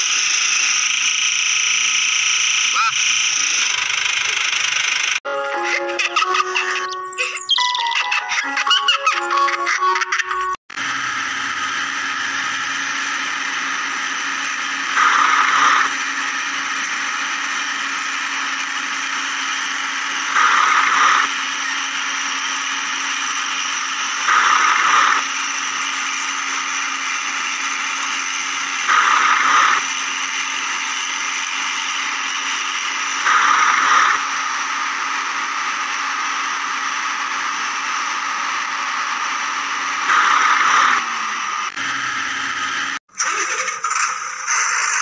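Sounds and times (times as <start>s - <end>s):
toy motor whining: 0.0s - 45.0s.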